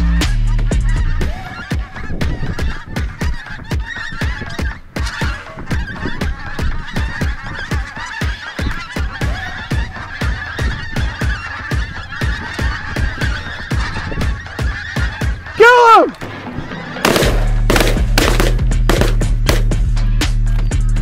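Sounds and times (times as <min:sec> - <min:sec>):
geese calling: 0:00.0 - 0:21.0
fast thumps: 0:16.2 - 0:19.8.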